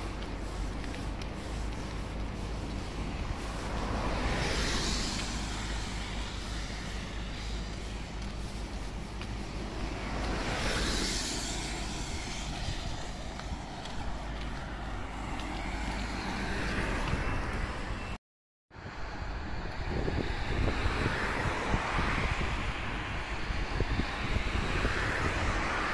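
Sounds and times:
car passing: 0.0s - 18.2s
wind rumble on microphone: 0.0s - 25.9s.

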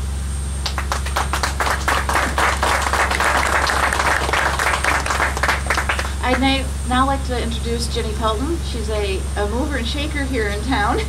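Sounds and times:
audience clapping: 0.6s - 6.5s.

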